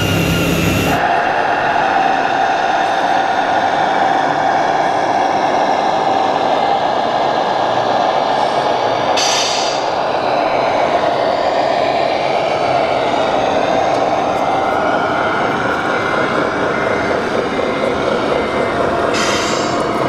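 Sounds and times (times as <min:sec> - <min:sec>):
model truck engine drone: 0:00.0 - 0:20.0
short sharp air hiss: 0:09.2 - 0:09.8.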